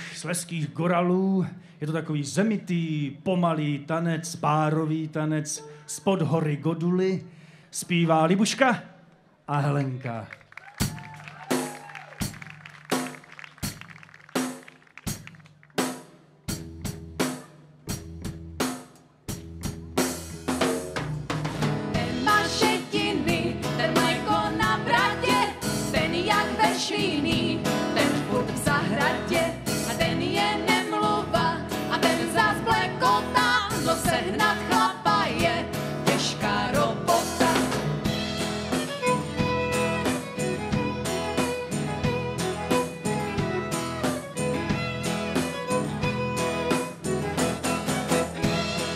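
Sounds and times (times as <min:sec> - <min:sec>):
folk band playing: 0:19.3 - 0:48.9
fiddle: 0:38.1 - 0:48.9.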